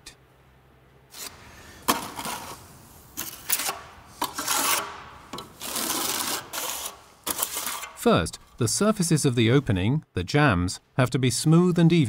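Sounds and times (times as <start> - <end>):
trowel scraping wet plaster: 1.1 - 8.7.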